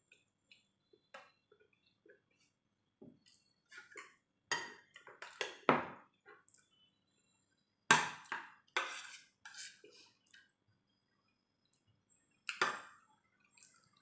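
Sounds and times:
metal spoon scraping ceramic plate: 0:08.8 - 0:09.8.

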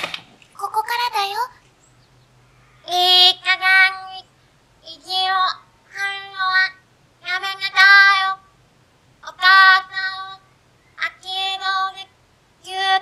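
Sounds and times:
girl reading aloud: 0:00.5 - 0:01.6.

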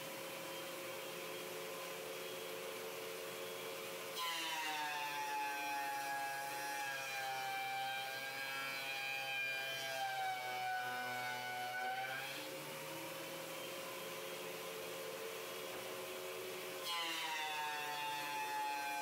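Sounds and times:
thickness planer cutting board: 0:16.8 - 0:19.0.

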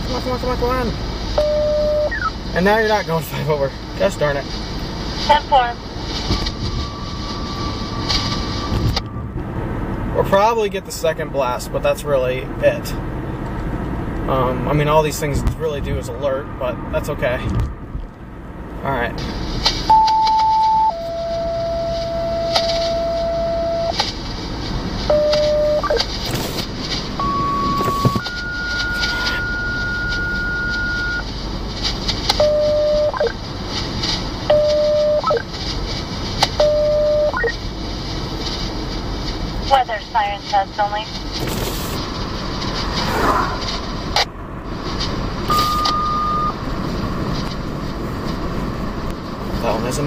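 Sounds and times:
car road noise: 0:00.0 - 0:50.0
two-tone paging tones: 0:01.4 - 0:02.3, 0:19.9 - 0:23.9, 0:25.1 - 0:26.0, 0:27.2 - 0:31.2, 0:32.4 - 0:33.4, 0:34.5 - 0:35.4, 0:36.6 - 0:37.5, 0:45.5 - 0:46.6
steady beep: 0:01.4 - 0:02.4, 0:19.9 - 0:23.9, 0:25.1 - 0:26.0, 0:27.2 - 0:31.2, 0:32.4 - 0:33.4, 0:34.5 - 0:35.4, 0:36.6 - 0:37.5, 0:45.5 - 0:46.6.

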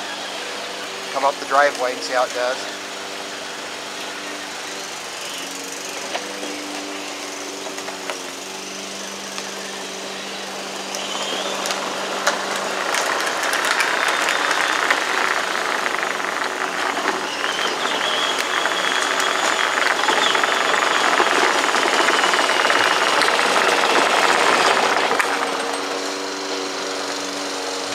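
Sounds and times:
electric motor whine: 0:00.0 - 0:27.9
plastic wheels rattling: 0:10.6 - 0:27.9.

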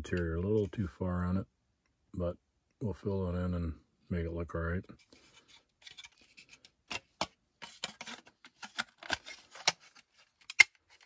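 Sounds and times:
plastic parts clicking: 0:05.8 - 0:11.0.

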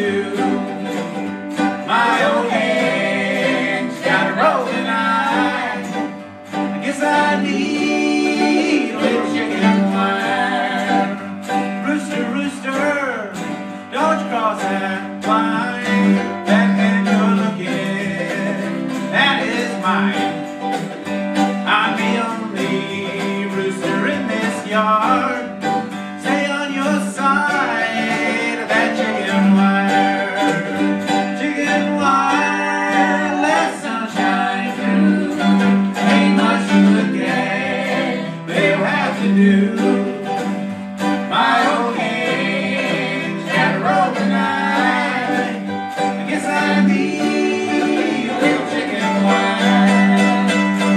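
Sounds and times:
man singing: 0:00.0 - 0:01.2, 0:01.8 - 0:20.5, 0:21.5 - 0:50.9
strummed acoustic guitars: 0:00.0 - 0:50.9
upright bass: 0:00.0 - 0:50.9.

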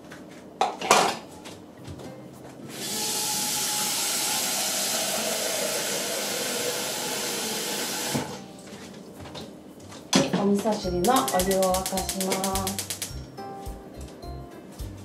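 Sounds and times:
water running into a saucepan: 0:02.8 - 0:08.4.

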